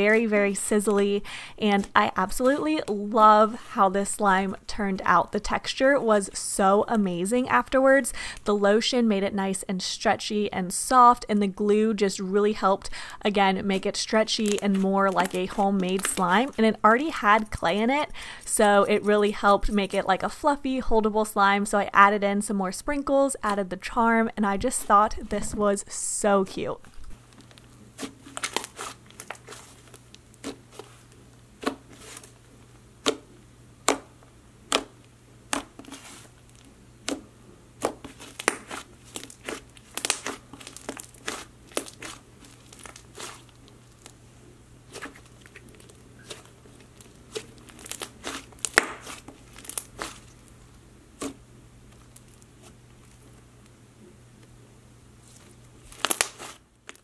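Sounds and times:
slime sticky pops and crackles: 0:37.8 - 0:43.4, 0:47.7 - 0:50.2, 0:55.9 - 0:57.0.

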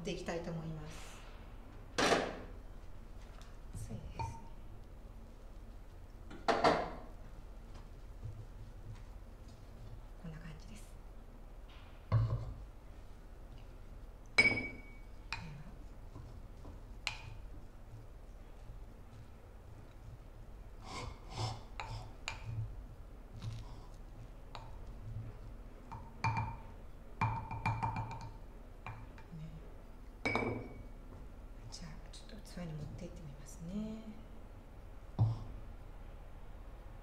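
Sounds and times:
ceramic pot lid knocking and clinking: 0:25.9 - 0:26.6, 0:27.2 - 0:28.3, 0:30.2 - 0:30.8.

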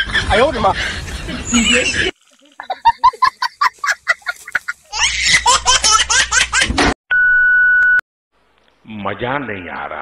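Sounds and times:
person laughing: 0:00.2 - 0:06.6.

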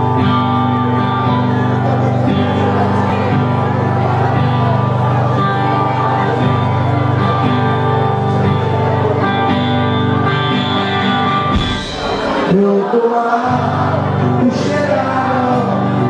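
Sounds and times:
bass guitar: 0:00.0 - 0:12.7, 0:13.4 - 0:16.0
electric guitars: 0:00.0 - 0:16.0
drums: 0:10.3 - 0:12.9.

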